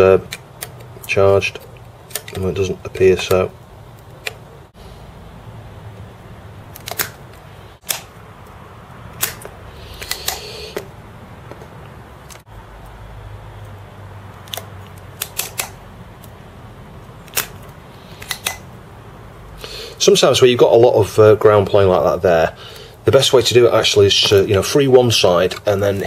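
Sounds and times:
hiss of suction: 9.8s - 10.8s
desoldering pump clicks: 17.2s - 18.6s.

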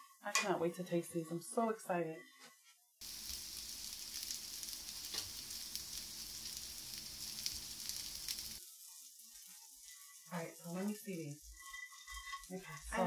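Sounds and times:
sharp crackles: 3.0s - 8.6s
batter sizzling in a pan: 3.0s - 13.0s.

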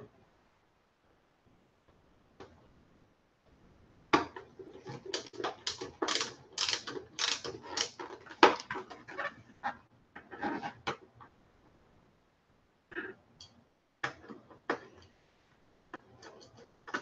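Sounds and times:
plastic visor rattling on helmet: 4.8s - 9.1s.

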